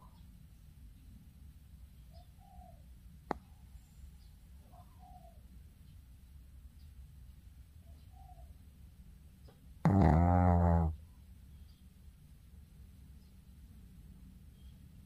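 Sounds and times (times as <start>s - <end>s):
dog snoring: 9.8s - 11.0s.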